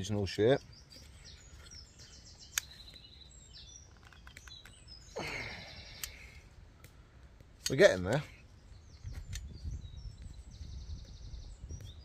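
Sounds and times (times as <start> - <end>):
small birds chirping: 0.0 - 12.0
sharp click: 2.5 - 2.8.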